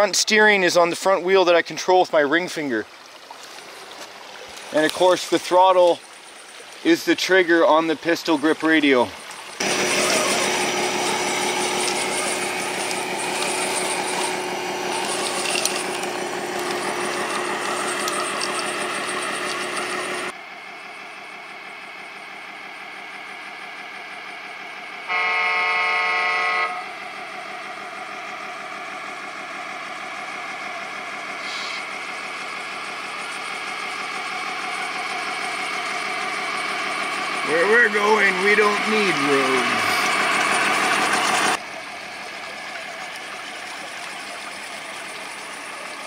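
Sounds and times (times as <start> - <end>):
water rushing: 0.0 - 20.3, 34.6 - 46.0
electric motor and gear whine: 4.5 - 46.0
truck air horn blast: 25.1 - 27.0.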